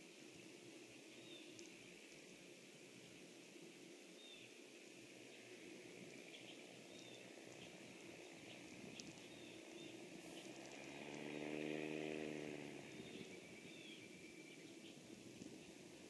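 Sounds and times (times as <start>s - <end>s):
outdoor ambient hiss: 0.0s - 16.0s
faint bird chirps: 0.4s - 2.1s, 4.1s - 4.6s, 5.2s - 11.2s, 12.3s - 15.8s
passing motor hum: 9.4s - 14.3s.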